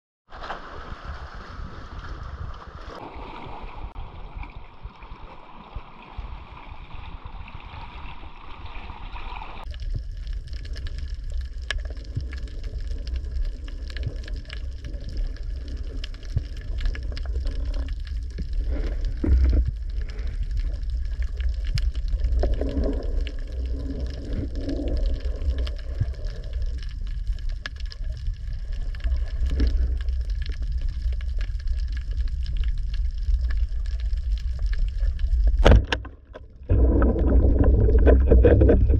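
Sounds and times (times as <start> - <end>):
underwater water rumble: 0.3 - 38.9
water gurgling: 0.4 - 38.9
crackling clicks: 9.7 - 38.9.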